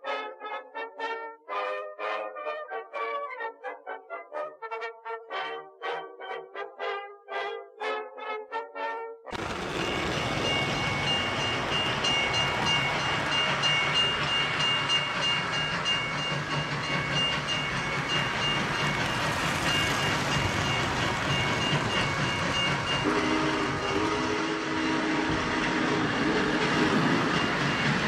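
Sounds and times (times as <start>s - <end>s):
model train wheels rattling on rails: 9.4s - 24.4s, 25.3s - 28.0s.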